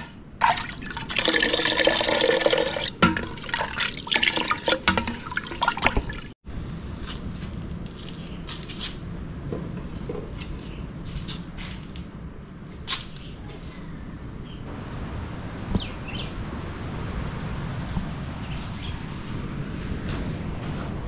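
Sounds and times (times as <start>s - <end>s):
milk sloshing in pot: 0.4s - 6.3s
pot and utensils clinking: 1.4s - 6.2s
low rush: 6.4s - 7.9s, 14.1s - 21.0s.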